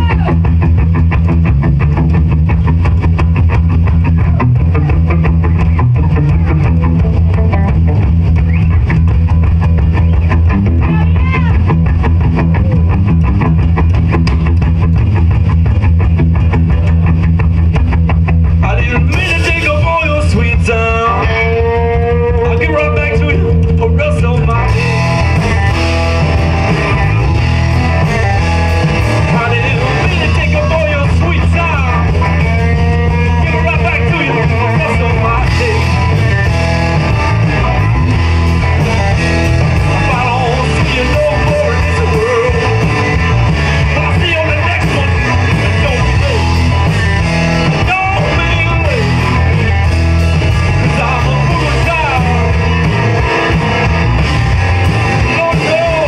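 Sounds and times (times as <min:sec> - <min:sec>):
amplified electric guitar: 0:00.0 - 0:56.0
band low end: 0:00.0 - 0:56.0
man singing into microphone: 0:18.6 - 0:24.8, 0:39.9 - 0:43.0.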